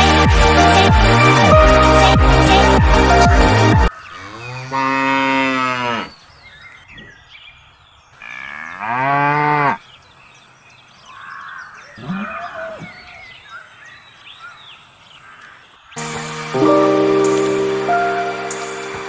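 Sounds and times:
cow mooing: 4.1s - 6.1s, 8.2s - 9.8s.

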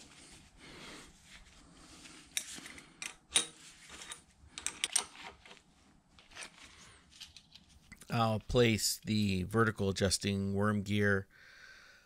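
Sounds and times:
wrench clicking on metal nuts: 2.4s - 5.1s.

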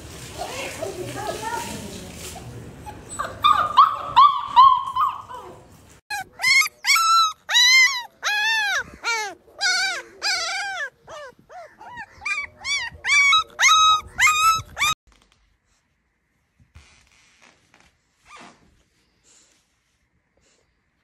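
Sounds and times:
puppy whimpering yelps: 2.8s - 15.0s.

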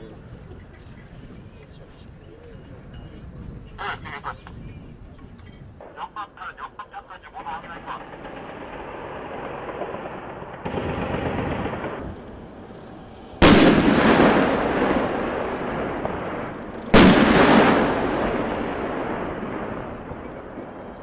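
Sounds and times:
gunfire blasts with rolling rumble: 7.4s - 12.5s, 13.4s - 20.9s.

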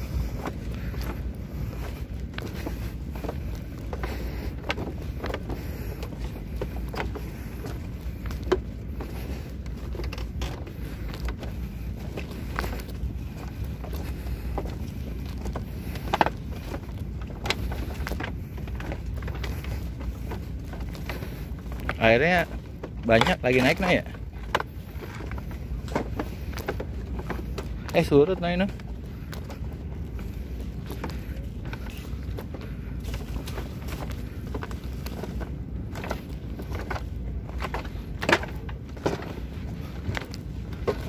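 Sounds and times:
bamboo clicks and creaks: 0.0s - 41.0s
footsteps on bamboo walkway: 0.0s - 41.0s
wind rumble on microphone: 0.0s - 41.0s.

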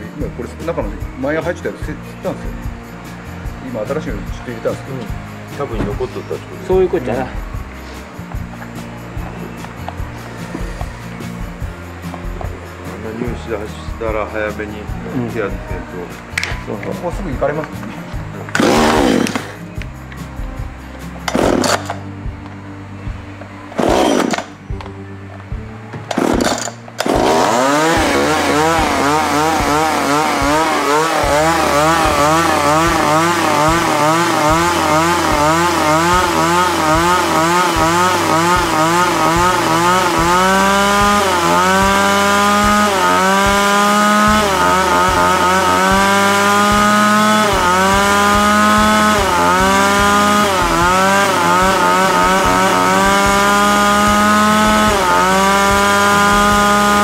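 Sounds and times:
chainsaw engine revving: 18.4s - 19.6s, 21.2s - 22.0s, 23.8s - 24.6s, 26.1s - 57.0s.

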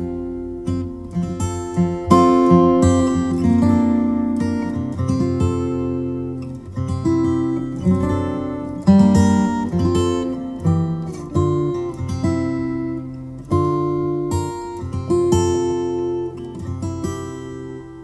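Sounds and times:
plucked string instrument: 0.0s - 18.0s.

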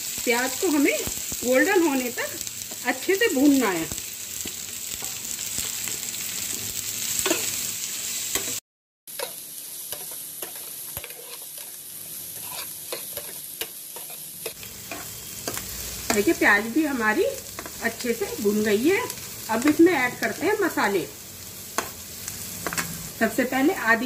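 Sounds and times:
onions sizzling in a pan: 0.0s - 24.0s
metal ladle scraping a pan: 10.0s - 15.1s.

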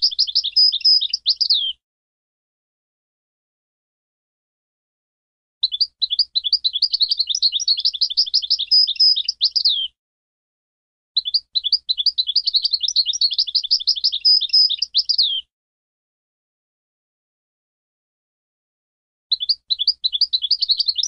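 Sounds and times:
goldfinch twittering song: 0.0s - 1.8s, 5.6s - 9.9s, 11.2s - 15.5s, 19.3s - 21.0s.

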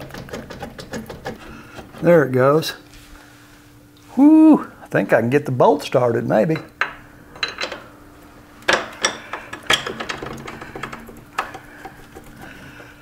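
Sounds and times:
metal bolt clinking: 8.7s - 11.5s.

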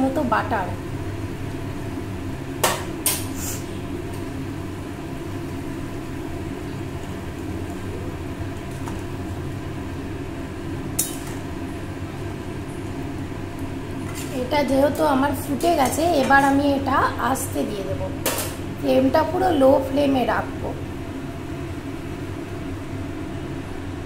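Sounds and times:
stew boiling in a pot: 0.0s - 24.0s.

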